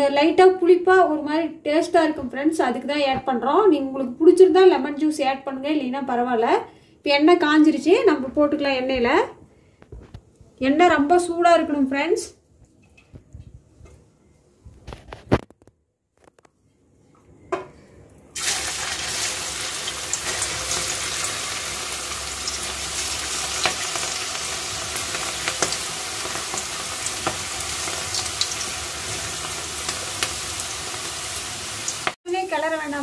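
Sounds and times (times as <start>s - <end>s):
deep-fry oil sizzling: 18.4s - 33.0s.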